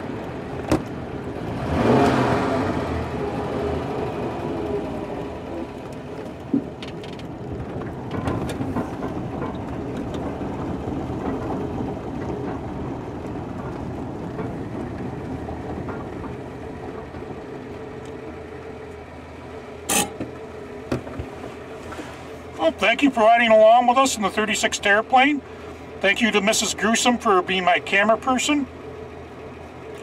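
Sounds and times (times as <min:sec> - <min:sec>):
car engine running: 0:00.0 - 0:30.0
road noise: 0:00.0 - 0:30.0.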